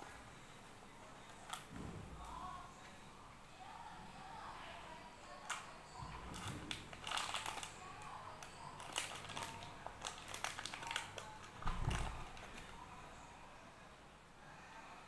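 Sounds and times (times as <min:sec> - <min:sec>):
plastic wrapper crinkling: 0:05.4 - 0:12.8.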